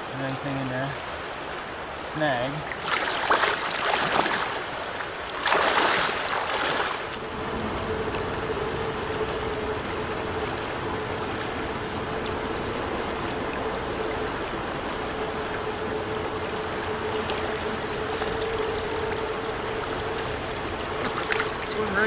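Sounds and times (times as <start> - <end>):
faint steady hum: 0.0 - 22.0
stream rushing: 0.0 - 22.0
splashing and knocking: 2.7 - 4.7, 5.4 - 7.0, 20.9 - 22.0.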